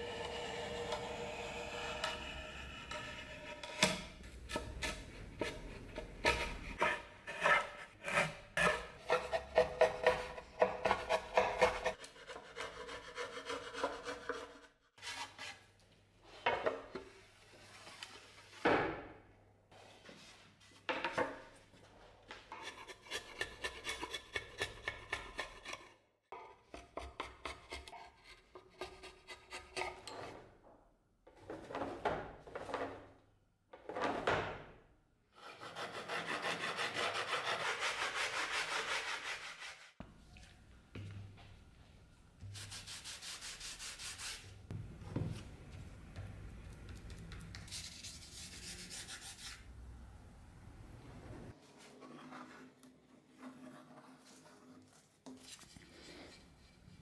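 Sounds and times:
knife scraping and cutting wood: 0:00.1 - 0:15.7, 0:22.5 - 0:26.0, 0:51.8 - 0:57.0.

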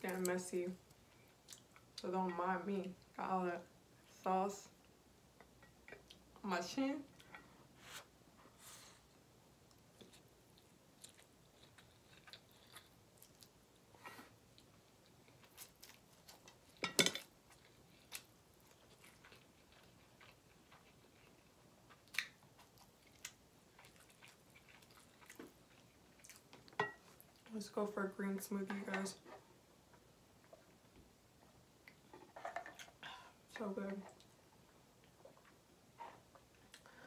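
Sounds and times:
wet chewing and lip smacks: 0:17.5 - 0:27.5.

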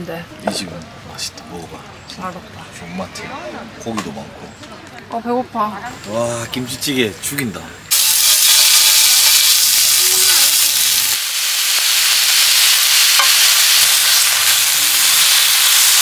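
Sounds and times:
meat sizzling on a griddle: 0:07.9 - 0:16.0
tongs on griddle: 0:07.9 - 0:16.0.

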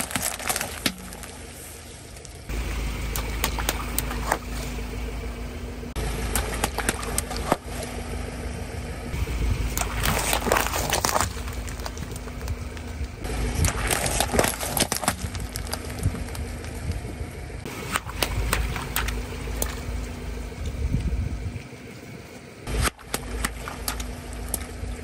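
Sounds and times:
gel beads crackling and squishing: 0:00.0 - 0:02.5, 0:09.6 - 0:16.8
car engine running: 0:00.0 - 0:25.0.

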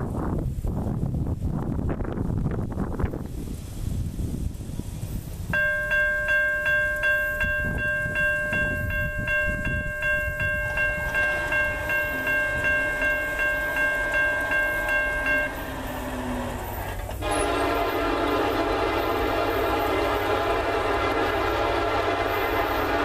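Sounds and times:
crossing bell ringing: 0:05.6 - 0:23.0
distant train horn: 0:10.5 - 0:23.0.

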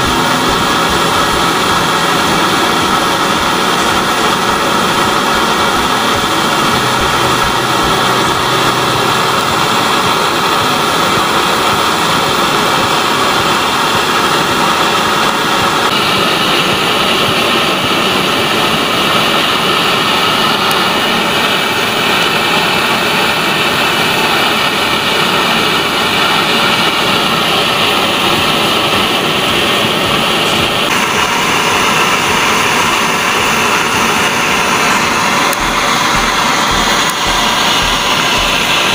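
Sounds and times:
stove burner rushing hiss: 0:00.0 - 0:38.9.

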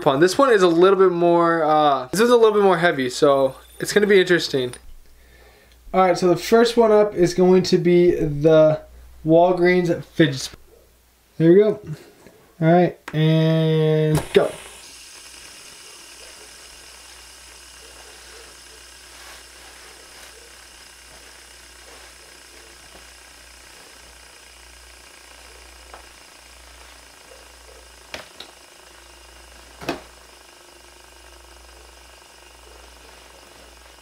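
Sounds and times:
fidget spinner whirring: 0:02.0 - 0:05.1, 0:13.2 - 0:34.0.

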